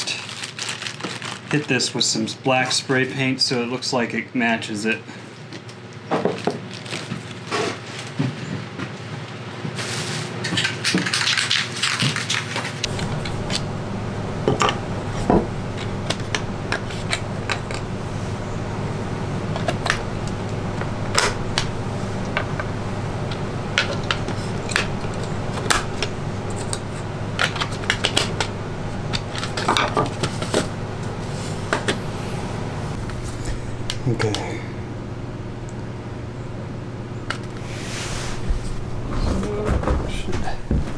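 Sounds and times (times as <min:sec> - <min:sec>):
steady low hum: 0:12.7 - 0:40.9.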